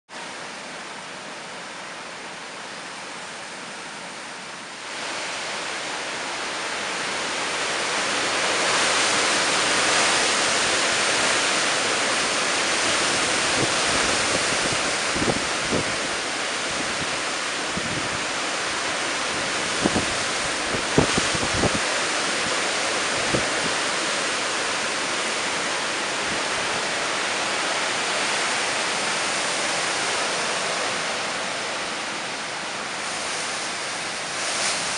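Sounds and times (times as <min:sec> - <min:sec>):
heavy rain: 0:00.1 - 0:34.9
gusting wind: 0:04.2 - 0:34.9
wind buffeting microphone: 0:08.4 - 0:30.8.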